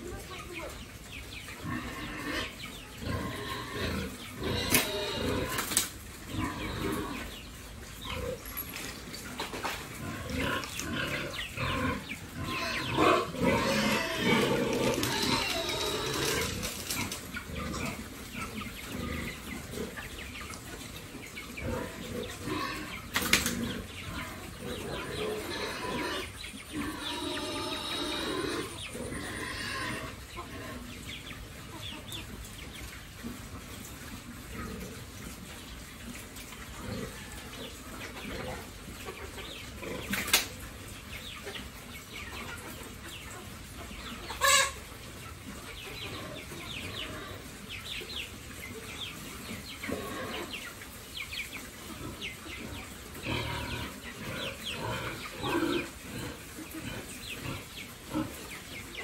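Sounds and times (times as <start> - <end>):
pigs grunting: 1.6 - 8.4, 10.0 - 20.2, 21.6 - 31.0, 34.4 - 35.4, 36.7 - 40.2, 45.9 - 47.6, 49.6 - 50.6, 51.9 - 58.6
pigs chewing: 3.0 - 22.9.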